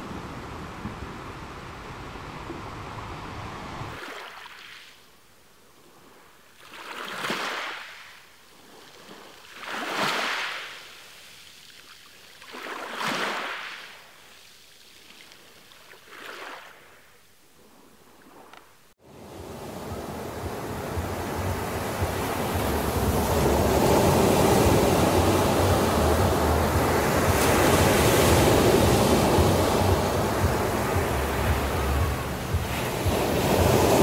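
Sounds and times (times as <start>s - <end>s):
small waves washing: 0.0s - 5.2s, 5.8s - 34.0s
surf rushing with low rumble: 19.1s - 34.0s.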